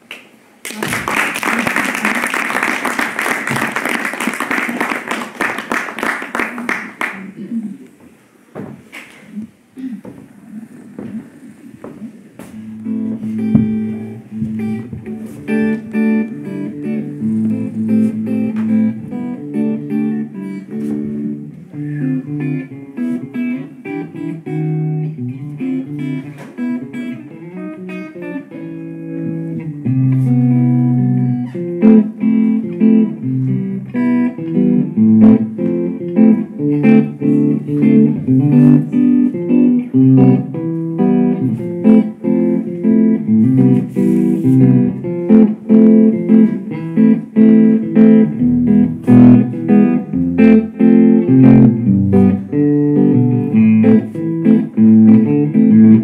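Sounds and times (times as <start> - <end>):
electric guitar melody: 12.1 - 56.0.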